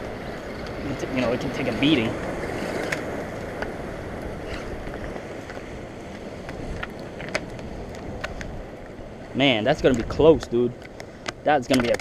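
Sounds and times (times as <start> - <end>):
surf breaking on rocks: 0.0 - 12.0
wind buffeting microphone: 0.0 - 12.0.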